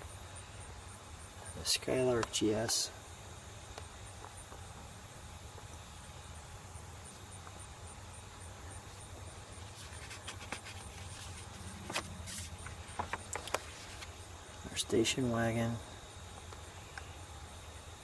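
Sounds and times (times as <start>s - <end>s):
low background hum: 0.0s - 18.0s
brochure pages rustling: 9.6s - 14.2s.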